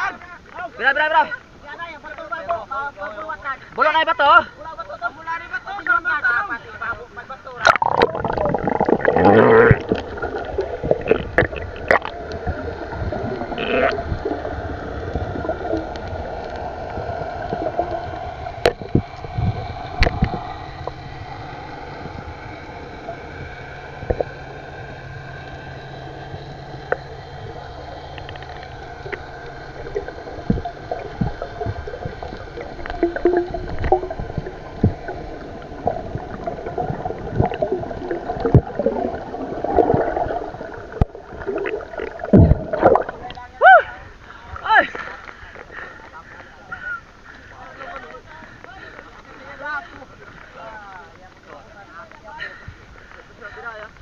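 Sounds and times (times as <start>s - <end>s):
muffled underwater gurgling: 0.0s - 54.0s
steady low hum: 7.4s - 53.5s
sharp underwater clicks and knocks: 18.5s - 21.0s.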